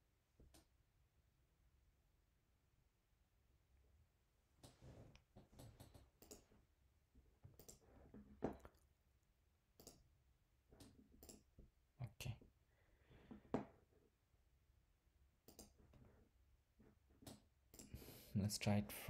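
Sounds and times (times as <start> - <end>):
computer mouse clicks: 5.6 - 6.5, 7.5 - 7.8, 9.8 - 10.0, 10.8 - 11.5, 15.4 - 15.8, 17.2 - 18.0.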